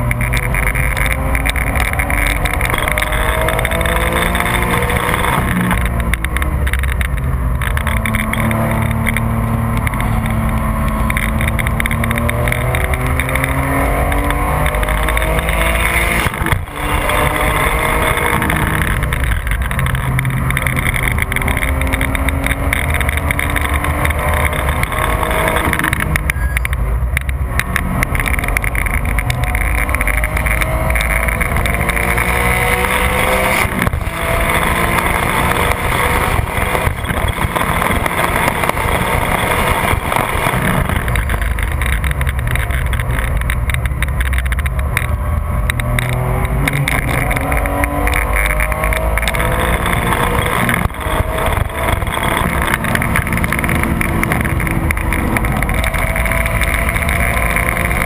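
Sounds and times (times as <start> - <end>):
car engine at high revs: 0.0 - 58.0
wind and road noise: 0.0 - 58.0.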